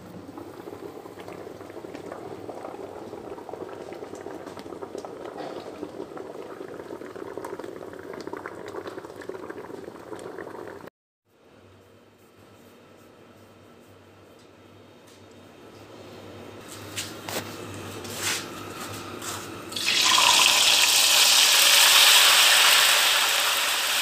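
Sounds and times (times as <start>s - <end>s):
water boiling in a pot: 0.0s - 10.9s, 19.6s - 24.0s.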